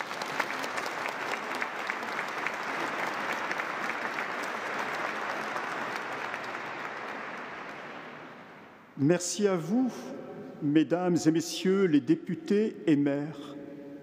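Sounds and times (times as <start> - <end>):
crowd applauding: 0.0 - 8.7.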